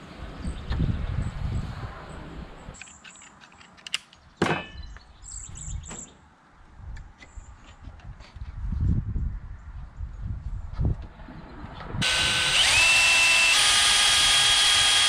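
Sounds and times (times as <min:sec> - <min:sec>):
small birds chirping: 0:04.1 - 0:06.3.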